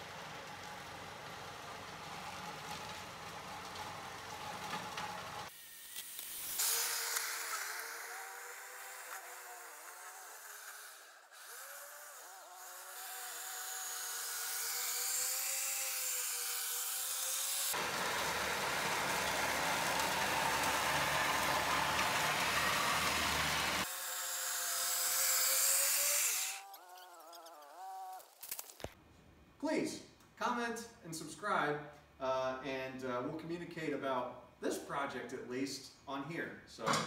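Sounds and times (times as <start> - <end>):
electric motor whine: 1.8 - 27.4.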